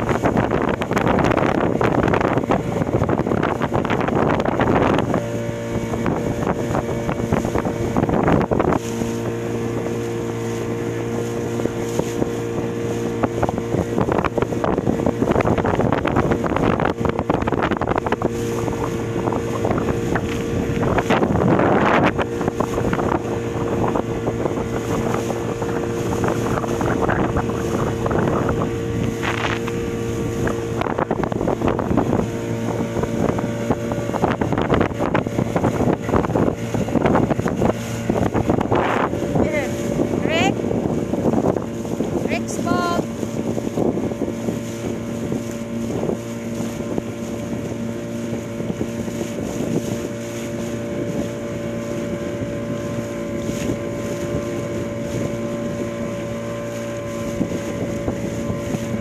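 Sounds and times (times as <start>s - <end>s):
boat motor running: 0.0s - 59.0s
wind gusts on microphone: 0.0s - 59.0s.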